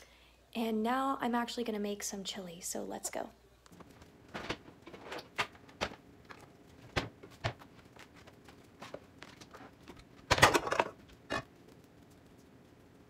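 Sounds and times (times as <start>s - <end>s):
kitchen items knocking: 3.8s - 7.7s, 9.4s - 11.5s
cookware clattering: 10.3s - 11.5s.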